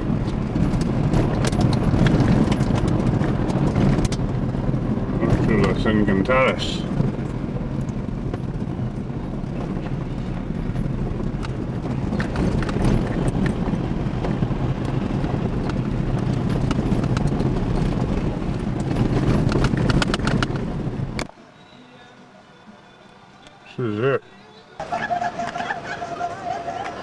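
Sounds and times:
rattles and knocks from bumps: 0:00.0 - 0:06.0, 0:09.4 - 0:21.3
vehicle engine and road rumble: 0:00.0 - 0:27.0.

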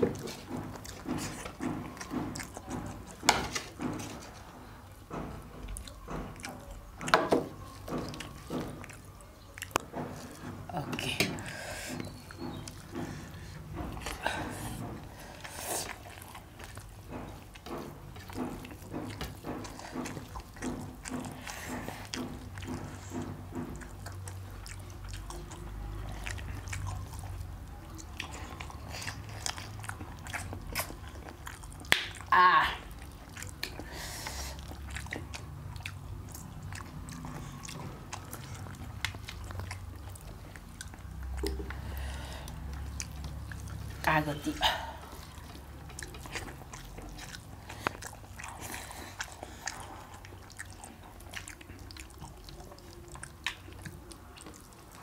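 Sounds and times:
people chewing food: 0:00.0 - 0:55.0
wet mouth clicks: 0:14.0 - 0:55.0.

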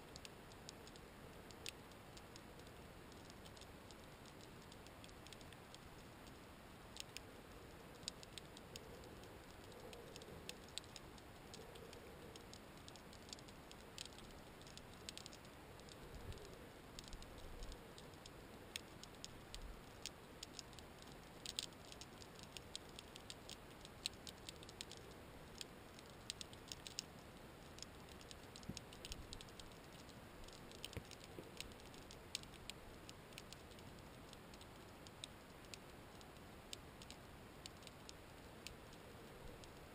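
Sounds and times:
underwater clicks and crackles: 0:00.1 - 0:39.9.

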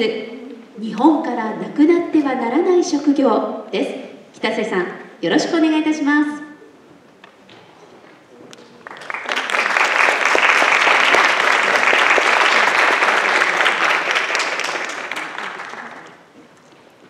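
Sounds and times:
audience applauding: 0:08.7 - 0:16.3.

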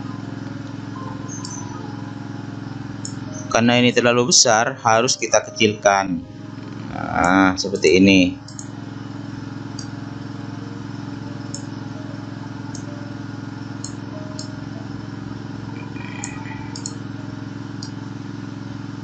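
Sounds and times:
steady low hum: 0:00.0 - 0:19.0
computer mouse clicks: 0:08.5 - 0:08.7, 0:16.6 - 0:17.0.

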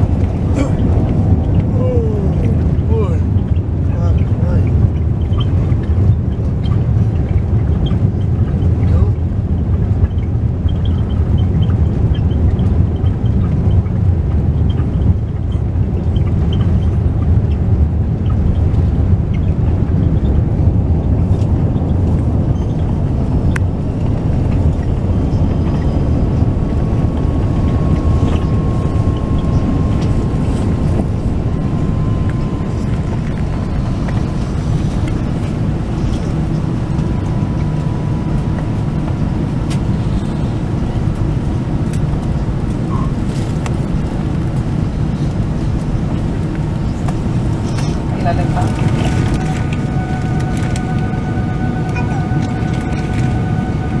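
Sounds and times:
airplane cabin rumble: 0:00.0 - 0:54.0
faint thin whine: 0:24.2 - 0:54.0.

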